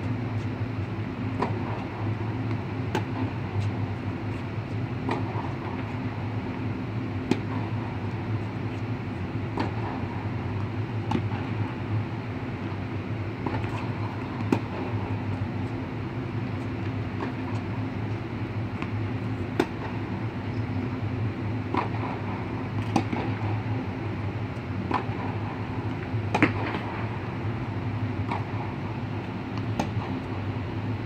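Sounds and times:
tennis balls struck by racquets: 1.4 - 4.0, 5.0 - 8.7, 9.4 - 11.8, 12.8 - 15.7, 16.8 - 20.2, 21.6 - 23.7, 24.8 - 27.3, 28.2 - 28.9, 29.5 - 30.4.

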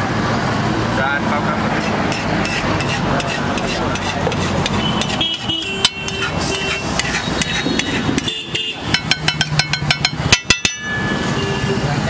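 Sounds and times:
metal spoon scraping on griddle: 1.7 - 11.3.

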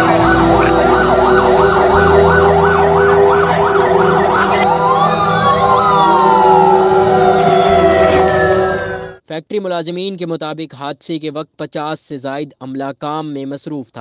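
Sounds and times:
emergency vehicle sirens: 0.0 - 9.2.

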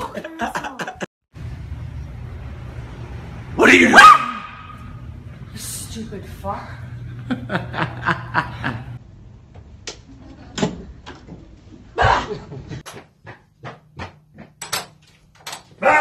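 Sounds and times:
person laughing: 7.1 - 9.0.

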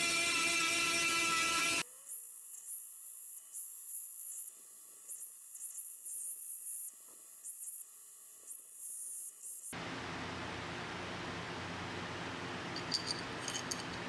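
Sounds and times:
belt grinder sanding metal: 0.0 - 1.8.

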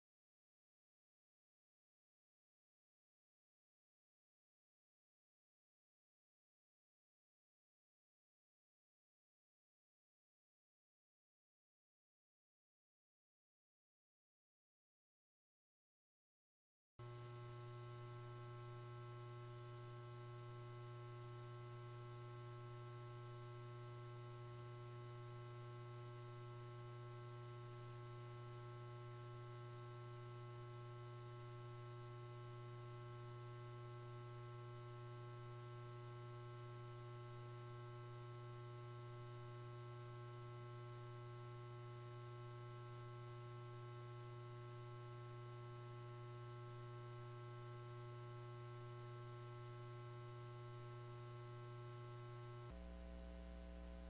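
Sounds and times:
faint steady hum: 17.0 - 54.0.

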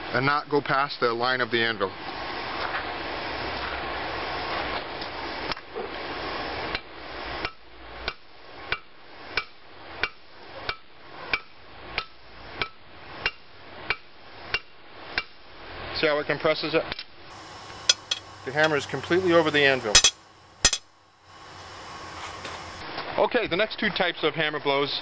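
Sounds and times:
hammer striking hot metal on anvil: 17.6 - 20.9.

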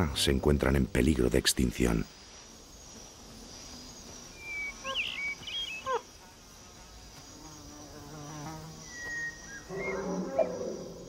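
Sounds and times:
insects buzzing: 0.0 - 11.0
high whistled bird calls: 4.3 - 6.0, 8.8 - 10.6.

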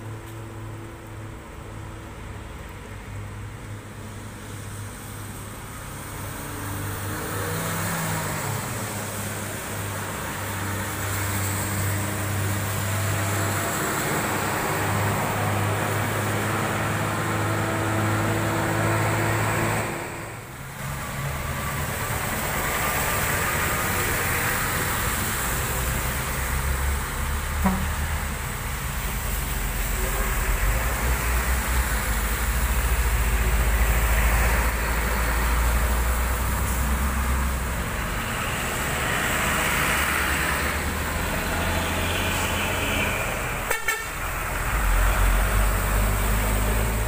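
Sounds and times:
diesel truck engines droning: 0.0 - 47.0
tyres hissing on wet road: 0.0 - 47.0.

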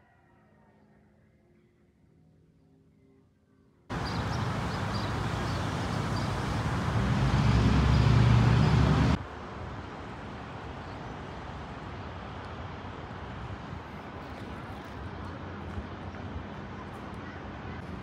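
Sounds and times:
outdoor background noise: 0.0 - 18.0
city road traffic rumble: 3.9 - 18.0.

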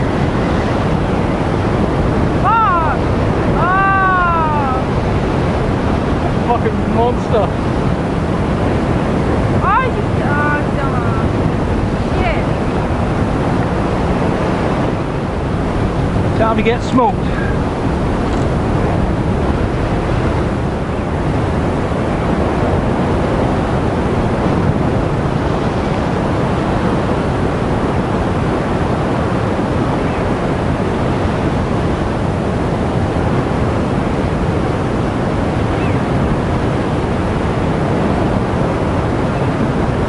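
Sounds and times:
ocean surf on rocky shore: 0.0 - 40.0
wind on microphone: 0.0 - 40.0.

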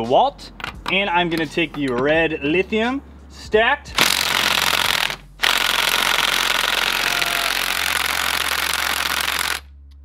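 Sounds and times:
impact driver hammering: 4.0 - 9.6.

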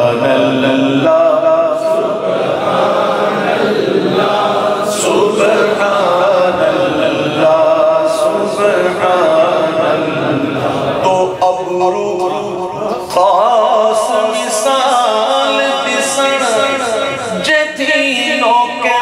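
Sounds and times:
unaccompanied devotional chanted singing: 0.0 - 19.0.

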